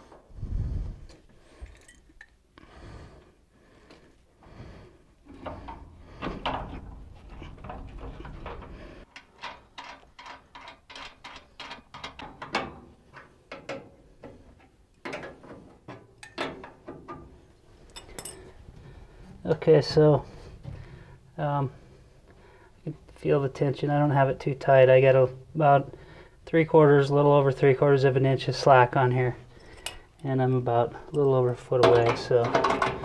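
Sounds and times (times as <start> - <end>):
metal clicks and scraping: 5.3 - 18.6, 29.6 - 30.3, 31.0 - 33.0.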